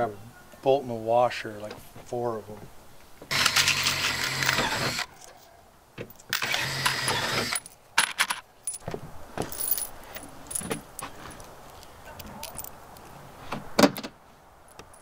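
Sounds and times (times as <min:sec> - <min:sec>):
bolts and washers rattling in box: 0:07.4 - 0:10.9
metal clinks: 0:09.4 - 0:12.8, 0:14.7 - 0:15.0.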